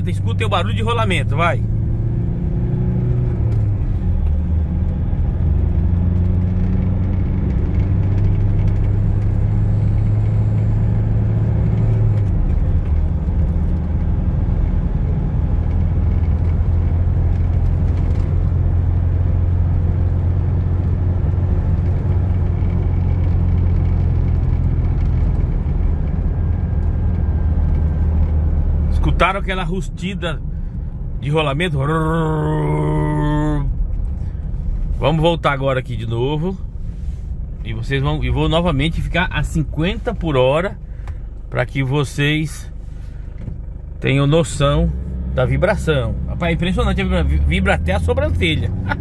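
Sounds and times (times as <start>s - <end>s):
vehicle engine and tyre rumble: 0.0s - 49.0s.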